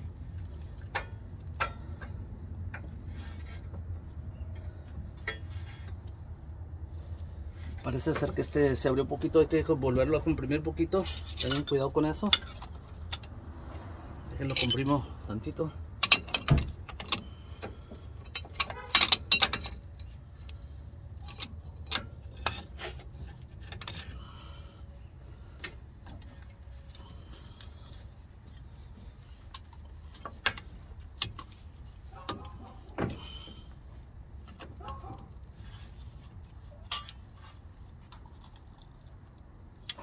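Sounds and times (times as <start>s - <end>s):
metal tools clinking: 10.8s - 13.3s, 14.4s - 24.6s, 36.6s - 39.0s.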